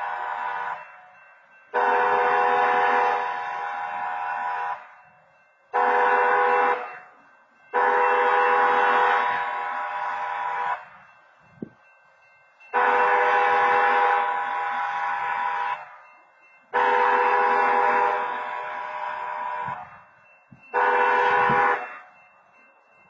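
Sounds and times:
crossing horn blasts: 0.0 - 0.8, 1.7 - 4.9, 5.7 - 7.0, 7.7 - 11.0, 12.7 - 16.0, 16.7 - 20.0, 20.7 - 22.1.

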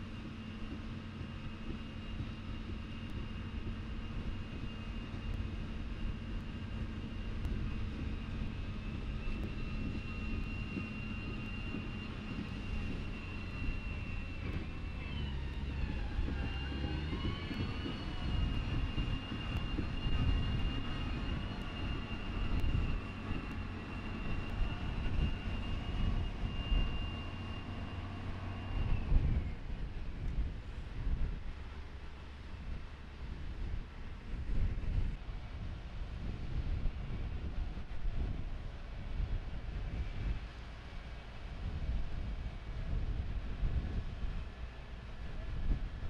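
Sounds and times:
machinery whining over rumble: 0.0 - 46.0.

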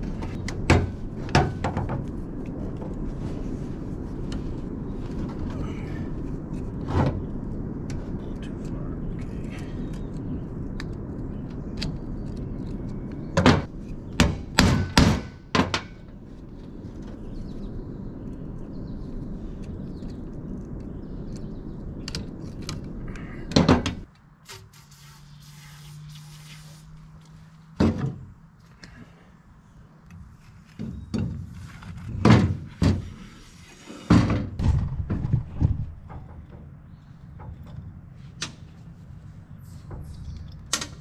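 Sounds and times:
faint low hum: 0.0 - 14.2
steady rushing noise: 0.0 - 24.1
metal knocks and clunks: 27.8 - 28.3, 33.9 - 38.6.

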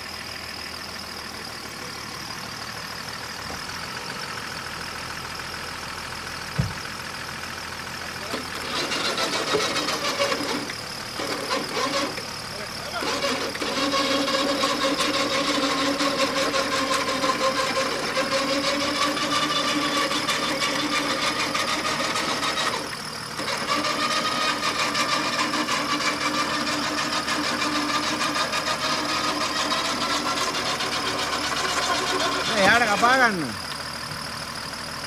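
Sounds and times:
electric winch motor whine: 8.2 - 34.2.

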